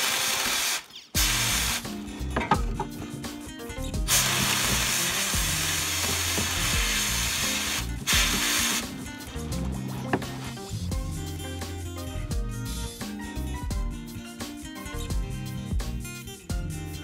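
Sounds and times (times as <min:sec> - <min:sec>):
sandblasting gun hissing: 0:00.0 - 0:01.8, 0:04.1 - 0:09.0
background music: 0:01.2 - 0:17.0.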